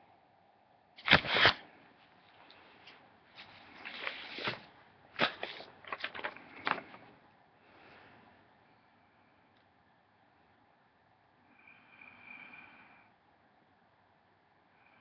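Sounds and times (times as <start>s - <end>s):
paper card rustling: 1.0s - 1.6s, 3.4s - 7.1s.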